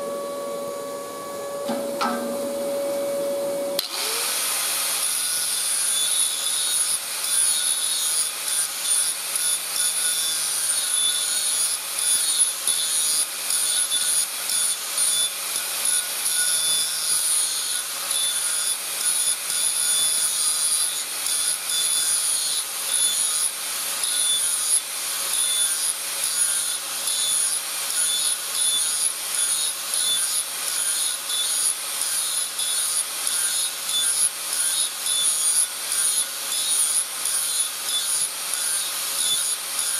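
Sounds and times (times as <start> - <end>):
disc grinding steel: 0.0 - 3.9
angle grinder motor whine: 0.0 - 6.6.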